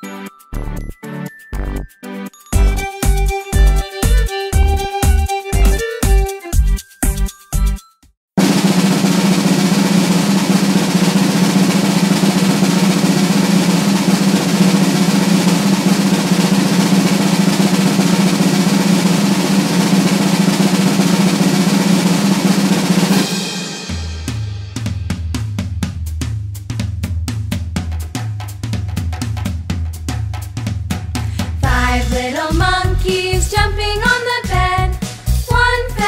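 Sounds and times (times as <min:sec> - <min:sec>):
drum kit beat: 0:02.6 - 0:07.8, 0:08.4 - 0:36.0
snare drum roll: 0:08.4 - 0:36.0.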